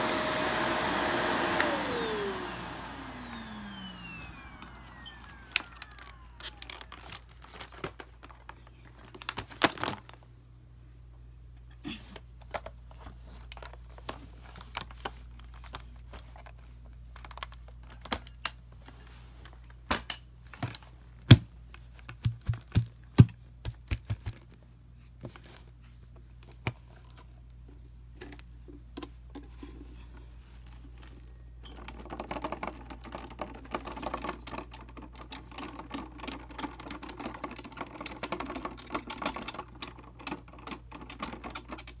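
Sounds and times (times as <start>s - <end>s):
vacuum cleaner motor hum: 0.0s - 7.2s.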